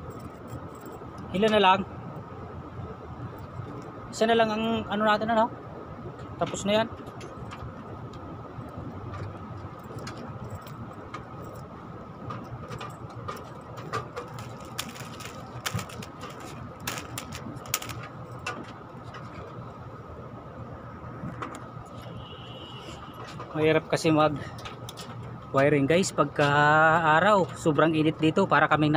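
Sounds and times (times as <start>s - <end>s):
steady background hum: 0.0s - 28.9s
hands handling electrical wiring: 6.2s - 19.9s.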